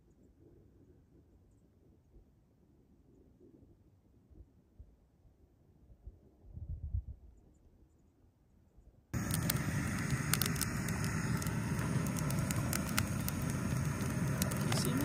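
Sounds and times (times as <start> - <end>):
campfire popping and crackling: 9.2 - 15.0
steady rushing noise: 9.2 - 15.0.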